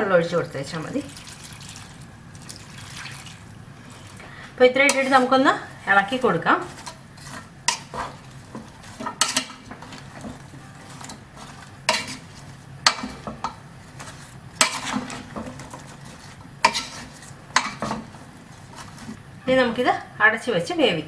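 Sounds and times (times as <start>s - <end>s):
spatula stirring vegetables in pan: 3.6s - 19.4s.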